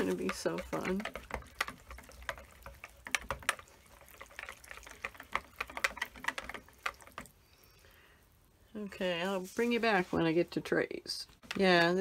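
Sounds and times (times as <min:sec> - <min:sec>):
whisk scraping a ceramic bowl: 0:00.0 - 0:07.4
liquid swishing: 0:00.0 - 0:07.8.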